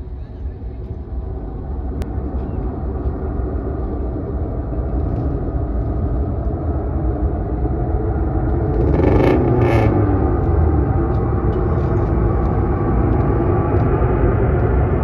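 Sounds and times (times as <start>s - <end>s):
distant jet engines rumbling: 0.0s - 15.0s.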